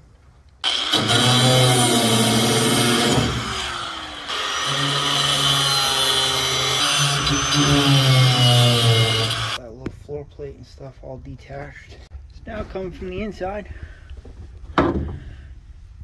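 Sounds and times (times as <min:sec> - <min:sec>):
angle grinder cutting metal: 0:00.6 - 0:09.6.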